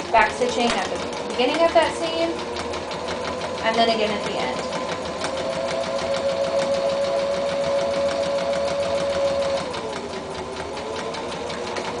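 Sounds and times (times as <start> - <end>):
sewing machine stitching: 0.0 - 12.0.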